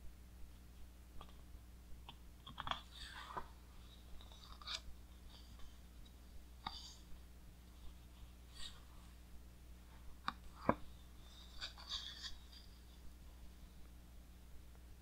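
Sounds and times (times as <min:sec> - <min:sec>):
book page turning: 0:02.4 - 0:05.8.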